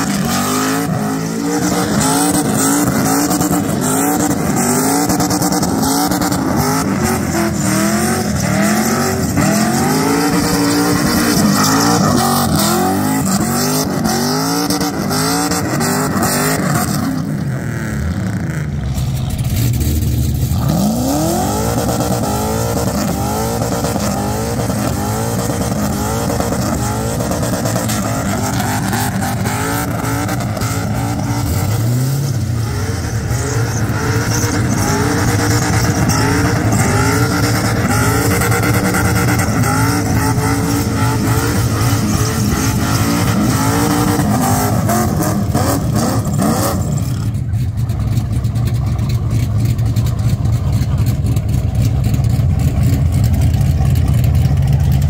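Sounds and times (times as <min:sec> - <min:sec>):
car engine revving hard: 0:00.0 - 0:18.9, 0:19.5 - 0:47.4.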